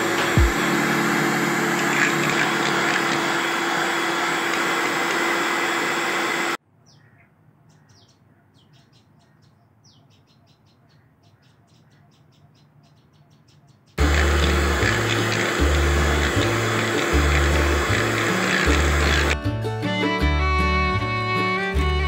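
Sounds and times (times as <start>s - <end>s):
electric hand mixer running: 0.0s - 6.6s, 14.0s - 19.4s
small birds chirping: 6.7s - 15.4s.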